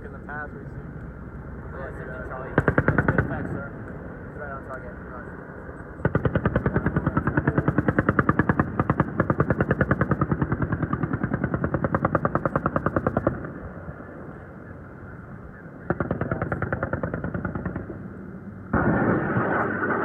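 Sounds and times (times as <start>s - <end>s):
rotary cannon firing: 2.4s - 3.7s, 6.0s - 13.7s, 15.8s - 20.0s.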